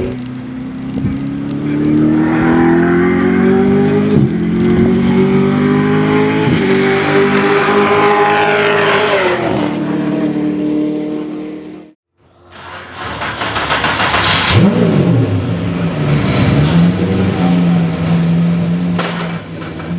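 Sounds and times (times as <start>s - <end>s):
race car engine at high revs passing: 0.6s - 11.9s.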